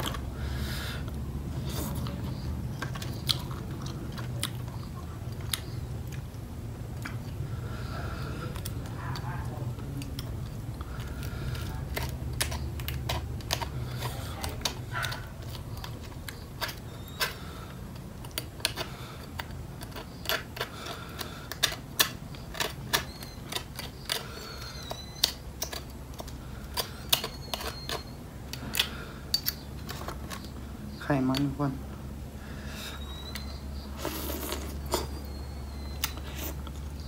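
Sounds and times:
low steady rumble: 0:00.0 - 0:19.9.

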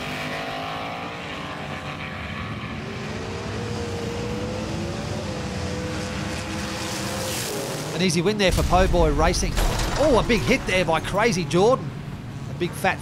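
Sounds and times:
engine-like drone: 0:00.0 - 0:13.0.

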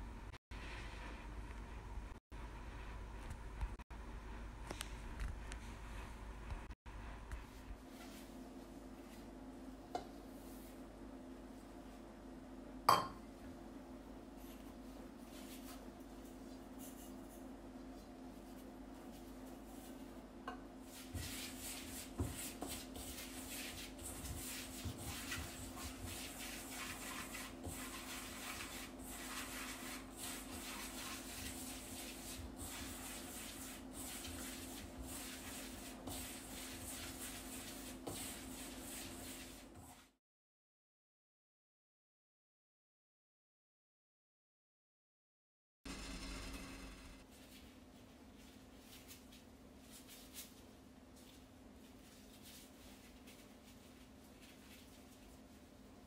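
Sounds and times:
hand rubbing flour in metal bowl: 0:07.4 - 0:12.0, 0:14.3 - 0:40.1, 0:47.2 - 0:55.8.

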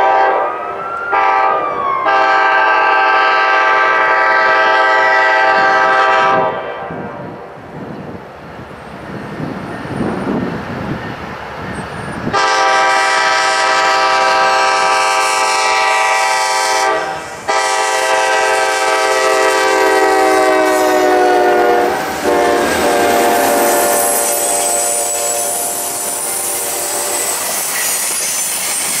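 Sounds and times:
diesel locomotive horn: 0:00.0 - 0:07.6, 0:12.2 - 0:27.5
train rolling by: 0:00.0 - 0:29.0.

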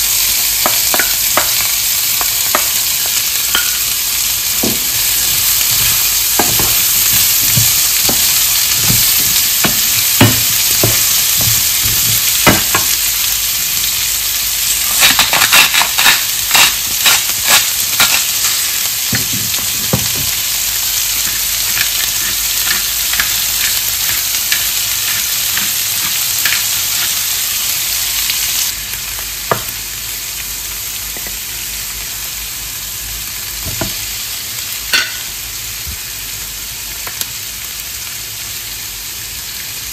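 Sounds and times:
food sizzling in a pan: 0:00.0 - 0:39.9
utensil knocking against pan: 0:07.5 - 0:12.9.

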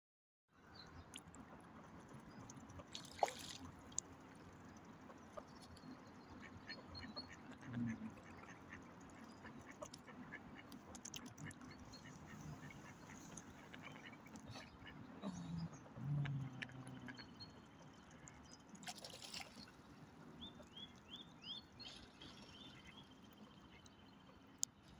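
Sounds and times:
swan dabbling in water: 0:02.1 - 0:04.2, 0:18.0 - 0:19.9
faint waterfowl calls: 0:06.3 - 0:17.4.

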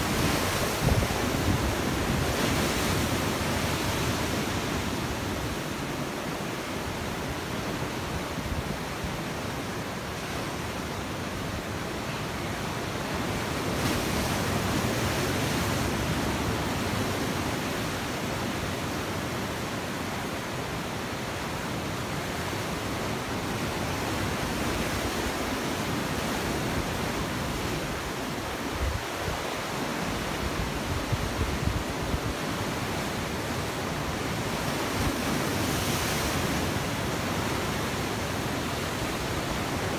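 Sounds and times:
ocean surf breaking on rocks: 0:00.0 - 0:39.9.

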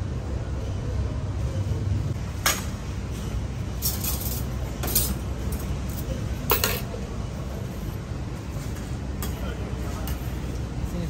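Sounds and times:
metal utensils clinking on steel: 0:03.8 - 0:07.0.

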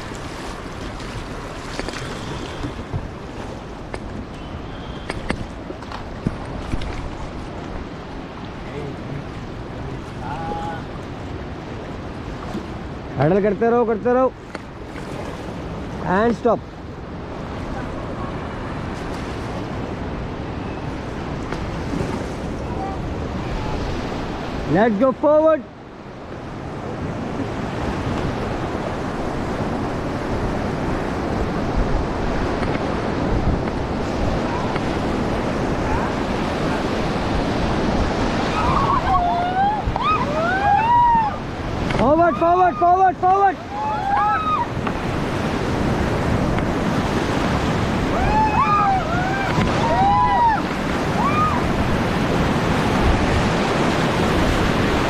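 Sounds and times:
wind buffeting microphone: 0:00.0 - 0:13.2, 0:25.8 - 0:55.0
rushing white water: 0:00.0 - 0:55.0
people shouting: 0:38.4 - 0:44.8, 0:48.0 - 0:51.8.

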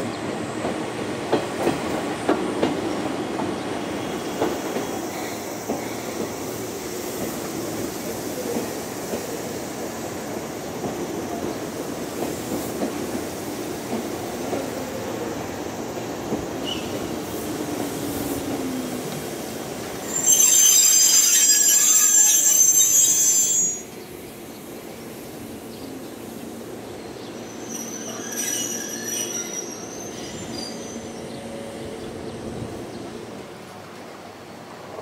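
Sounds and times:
wheels squealing while braking: 0:20.0 - 0:24.0, 0:27.5 - 0:31.2.

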